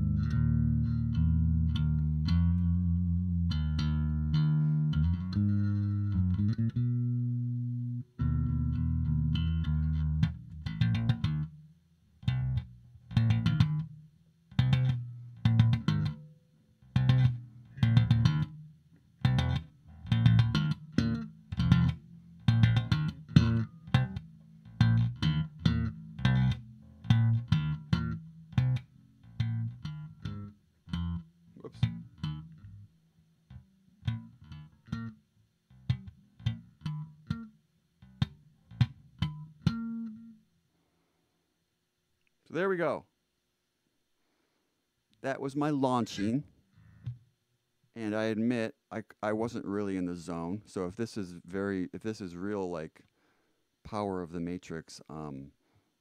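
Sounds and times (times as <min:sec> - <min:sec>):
electric bass guitar plucked notes: 0:00.0 - 0:40.5, 0:45.6 - 0:47.2.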